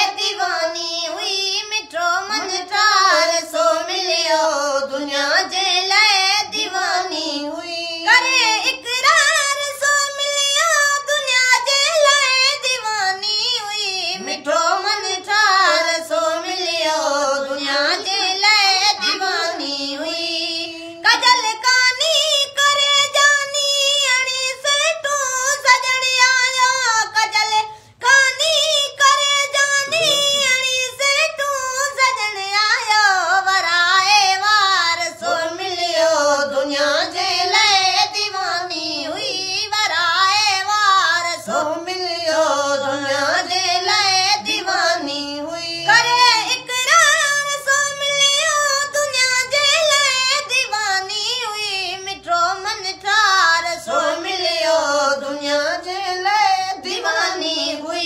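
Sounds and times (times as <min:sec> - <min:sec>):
boy singing unaccompanied: 0:00.0 - 0:58.0
singer breathing: 0:27.7 - 0:28.0.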